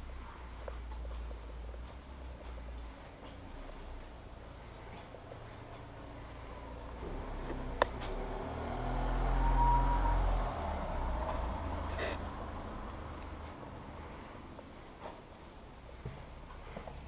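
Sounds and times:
motor vehicle passing by: 0:02.4 - 0:15.2.

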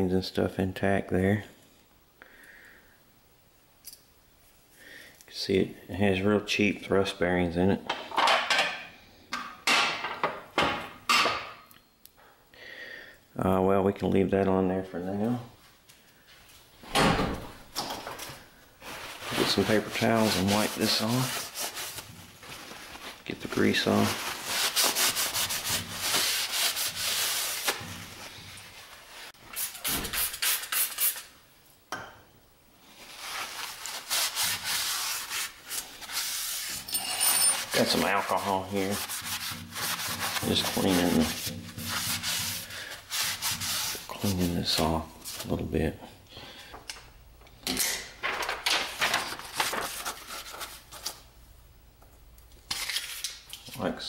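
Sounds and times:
paper rustling and crinkling: 0:18.0 - 0:30.3, 0:48.2 - 0:51.3
paper towel wiping metal: 0:18.8 - 0:31.2, 0:32.9 - 0:36.8, 0:37.6 - 0:45.6.

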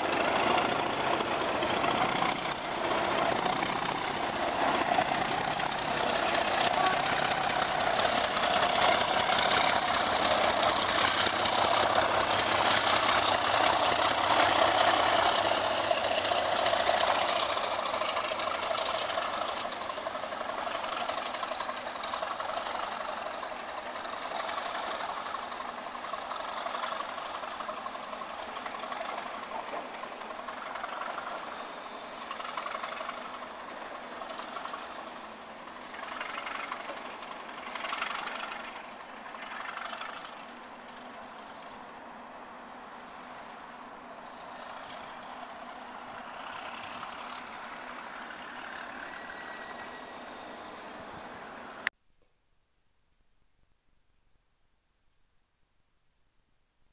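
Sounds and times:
diesel locomotive engine working hard: 0:00.0 - 0:51.9
steady high whistle: 0:03.8 - 0:05.4, 0:48.9 - 0:51.7.

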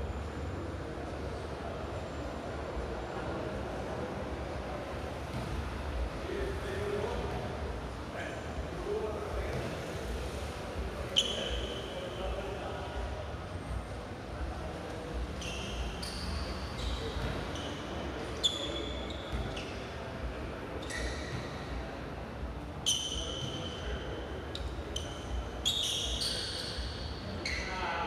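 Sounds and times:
sneaker squeaks on hard floor: 0:11.0 - 0:12.2, 0:15.1 - 0:20.0, 0:20.8 - 0:21.8, 0:22.8 - 0:28.0
ball bouncing: 0:17.2 - 0:17.5.

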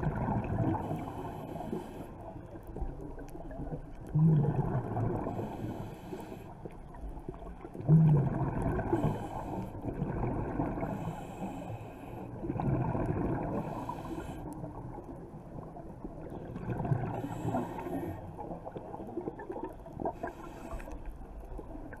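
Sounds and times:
exhaled bubbles burbling: 0:00.0 - 0:01.0, 0:02.8 - 0:05.7, 0:07.0 - 0:09.2, 0:09.8 - 0:11.0, 0:12.3 - 0:13.9, 0:14.6 - 0:17.6, 0:18.4 - 0:20.4.

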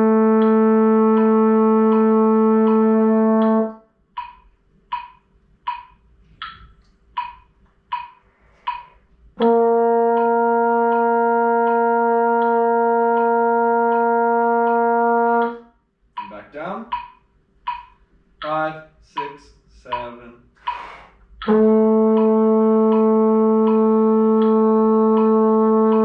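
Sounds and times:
trombone long note: 0:00.0 - 0:03.8, 0:09.4 - 0:15.6, 0:21.4 - 0:26.0
metronome ticking: 0:00.0 - 0:26.0.

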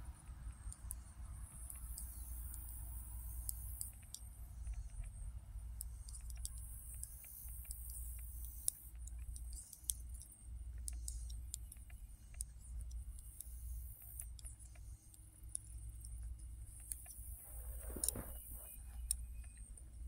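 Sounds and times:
knitting needles clicking: 0:05.8 - 0:19.9.

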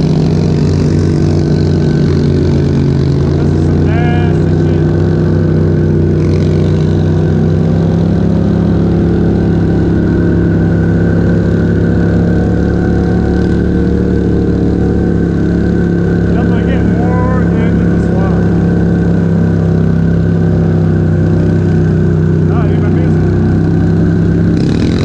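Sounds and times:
atv engine chugging at low revs: 0:00.0 - 0:25.0.

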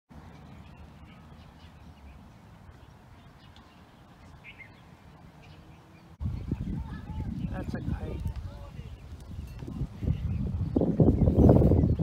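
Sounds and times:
wind rumbling on microphone: 0:06.1 - 0:12.0.

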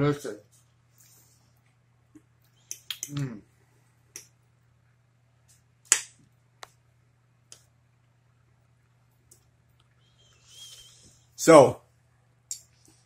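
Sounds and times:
faint steady hum: 0:00.0 - 0:13.0
short vocal sound: 0:03.0 - 0:03.5.

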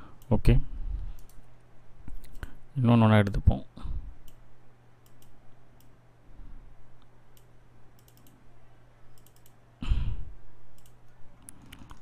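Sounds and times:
faint electrical hum: 0:00.0 - 0:12.0
computer mouse clicks: 0:01.1 - 0:01.5, 0:02.1 - 0:02.5, 0:05.0 - 0:06.0, 0:07.3 - 0:08.4, 0:09.1 - 0:09.6, 0:10.7 - 0:12.0
keyboard clicks: 0:01.2 - 0:01.4, 0:05.0 - 0:05.9, 0:07.4 - 0:08.4, 0:09.1 - 0:09.6, 0:10.7 - 0:12.0.

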